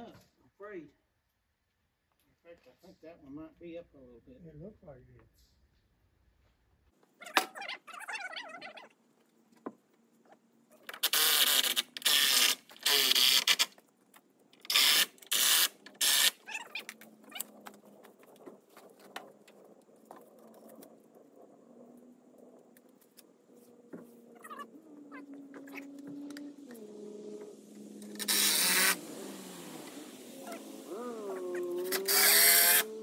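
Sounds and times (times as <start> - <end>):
cordless power driver bursts: 11.0 - 13.7, 14.7 - 16.4, 28.0 - 29.0, 31.9 - 32.9.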